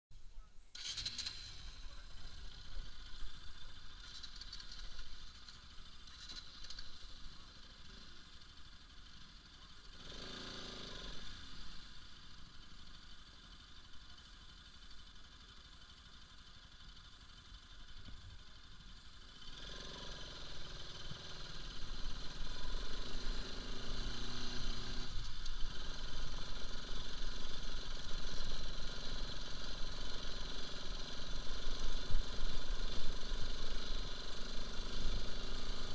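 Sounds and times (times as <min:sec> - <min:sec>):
motorcycle engine running: 0:00.6 - 0:35.9
rattling over stony track: 0:00.7 - 0:09.4.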